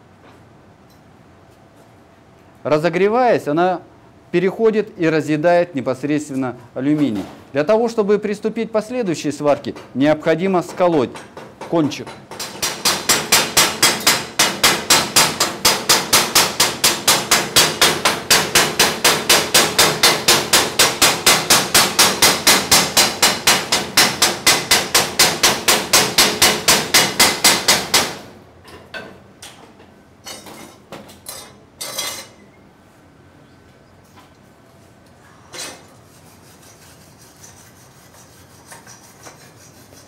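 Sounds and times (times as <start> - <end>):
hammer tapping metal weld: 9.5 - 28.2.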